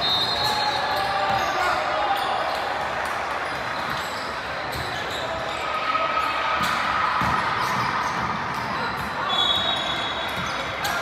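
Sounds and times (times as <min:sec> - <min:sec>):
echoing gym noise: 0:00.0 - 0:11.0
sneakers squeaking: 0:00.0 - 0:11.0
basketball bouncing on court: 0:01.0 - 0:01.6, 0:06.5 - 0:11.0.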